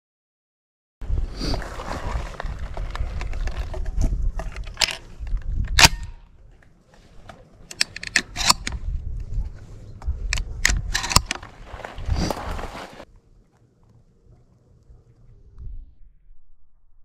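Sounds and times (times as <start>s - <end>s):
shotgun shells clicking into magazine: 4.6s - 6.0s, 7.7s - 8.8s.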